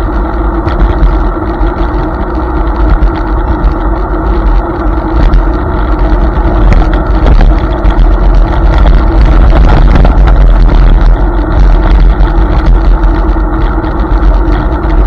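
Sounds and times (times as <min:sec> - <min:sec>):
electric scooter hum: 0:00.0 - 0:15.0
wind rumbling on microphone: 0:00.0 - 0:15.0.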